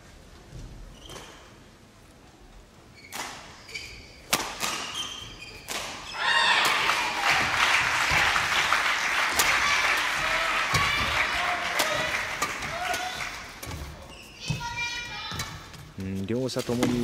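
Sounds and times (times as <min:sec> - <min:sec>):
shoe squeaks on court: 0:00.9 - 0:01.6, 0:02.9 - 0:06.2, 0:13.7 - 0:14.8
racket striking shuttlecock: 0:04.3 - 0:05.0, 0:10.7 - 0:13.9
loud crowd noise: 0:06.1 - 0:14.2.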